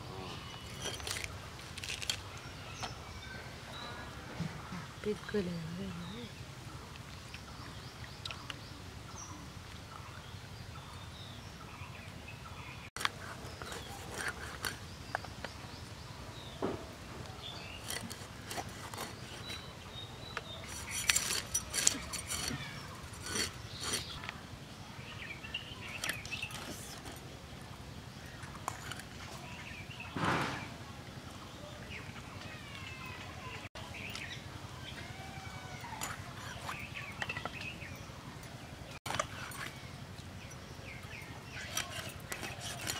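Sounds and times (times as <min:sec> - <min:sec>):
faint birds chirping: 0:00.0 - 0:42.9
fish scales scraped on blade: 0:13.0 - 0:14.8, 0:20.6 - 0:24.2, 0:41.6 - 0:42.9.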